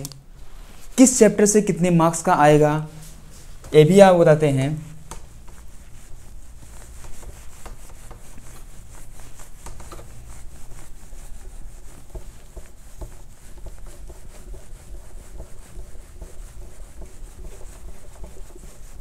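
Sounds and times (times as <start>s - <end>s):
cloth rubbing on whiteboard: 0.4s - 19.0s.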